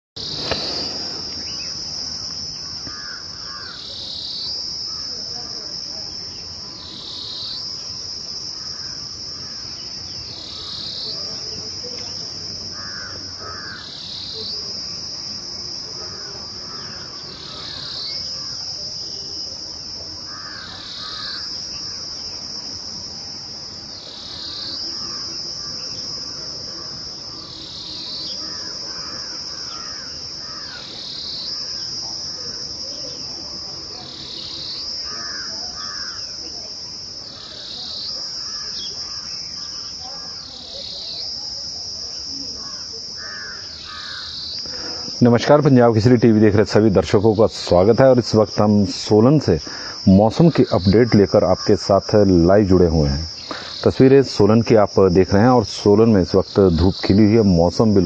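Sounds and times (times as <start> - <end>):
bird chirps: 0.2 - 3.8
insects buzzing: 0.2 - 58.0.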